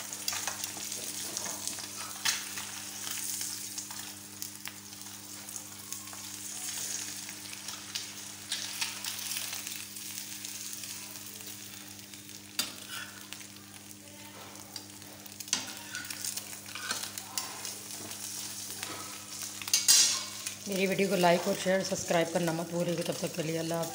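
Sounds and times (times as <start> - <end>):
egg and bread sizzling in pan: 0.0 - 23.9
metal tongs clicking on pan: 19.6 - 20.6.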